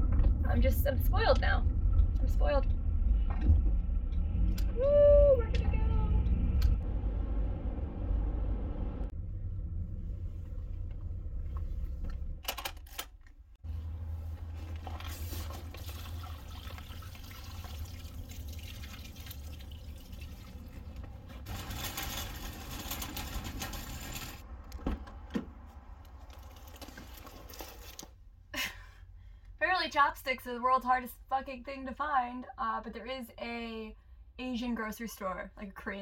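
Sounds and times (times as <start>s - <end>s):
car low hum: 0.0s - 26.7s.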